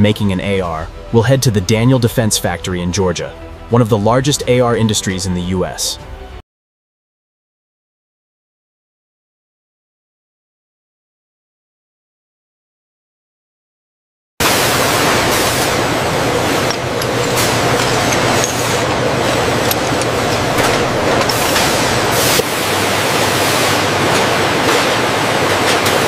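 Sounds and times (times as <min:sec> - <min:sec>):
factory machinery noise: 0:14.4 - 0:26.0.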